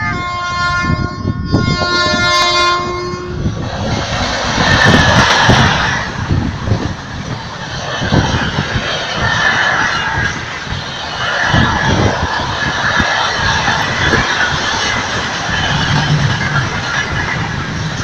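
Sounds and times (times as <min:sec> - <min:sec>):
locomotive horn chord: 0:00.0 - 0:03.4
train rumbling past: 0:00.0 - 0:18.0.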